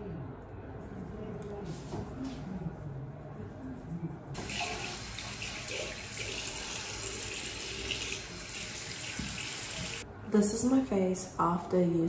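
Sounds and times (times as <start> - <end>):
tap water running into sink: 4.4 - 10.0.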